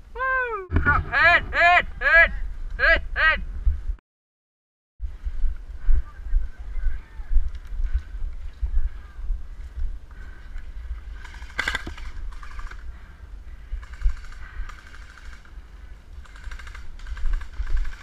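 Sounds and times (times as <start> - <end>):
low microphone rumble: 0.0 - 4.0, 5.0 - 14.6.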